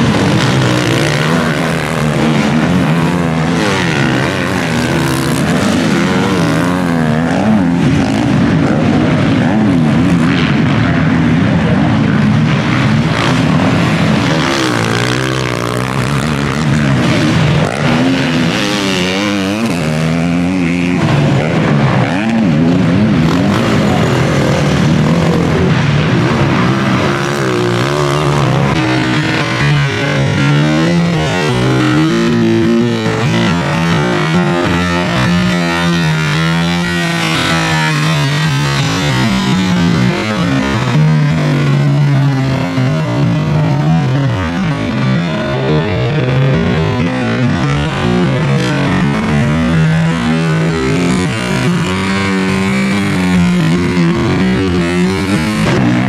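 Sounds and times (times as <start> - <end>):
motorbike engines revving: 0.0 - 56.0.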